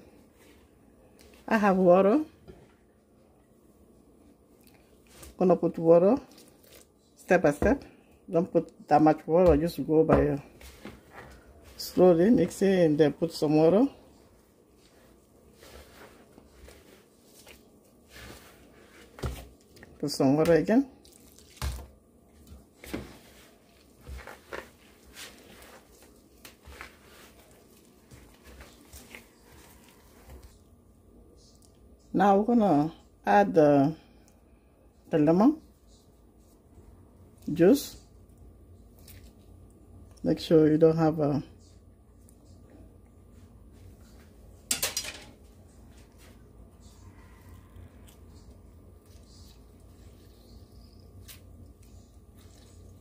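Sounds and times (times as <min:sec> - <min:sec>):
faint handling sounds: 0:14.0 - 0:20.0, 0:22.2 - 0:31.9
plastic glove crinkling: 0:14.1 - 0:20.0, 0:21.0 - 0:21.9, 0:22.6 - 0:30.6.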